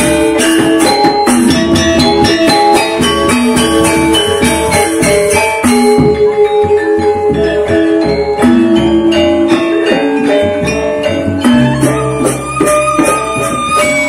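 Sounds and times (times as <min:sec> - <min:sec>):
hand drums: 0:00.0 - 0:14.0
metallophones struck with mallets: 0:00.0 - 0:14.0.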